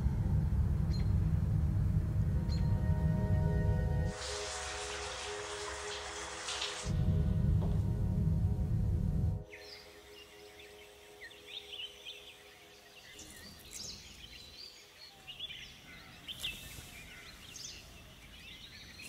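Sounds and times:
faint outdoor background: 0.0s - 19.0s
birds chirping: 2.3s - 7.0s, 9.4s - 19.0s.

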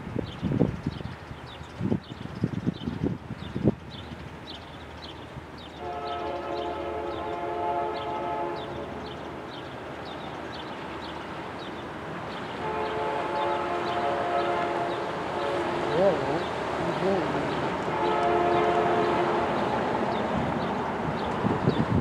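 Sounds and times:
locomotive horn blasts: 5.8s - 8.9s, 12.6s - 16.2s, 17.9s - 19.8s.

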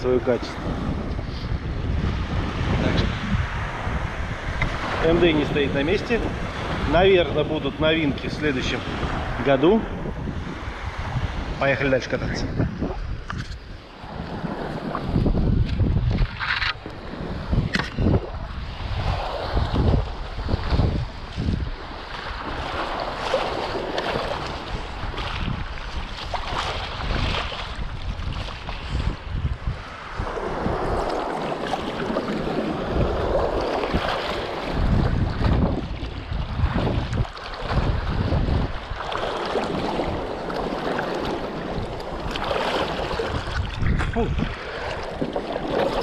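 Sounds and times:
wind buffeting microphone: 0.0s - 46.0s
water rushing and splashing: 1.6s - 46.0s.

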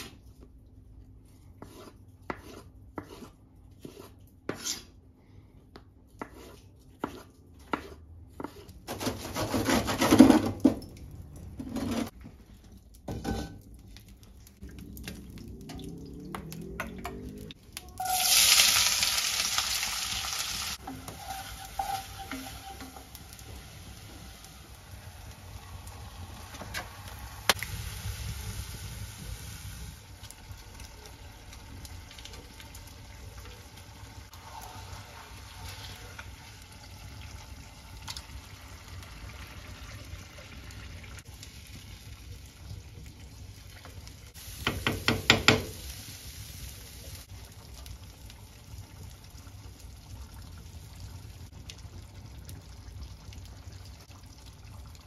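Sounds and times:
liquid stirring in a pot: 20.8s - 23.5s.

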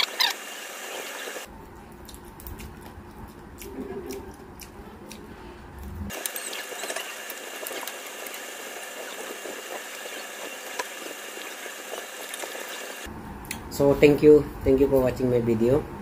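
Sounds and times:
chewing and eating sounds: 1.5s - 12.7s
high-pitched whine and hiss: 6.1s - 13.1s.

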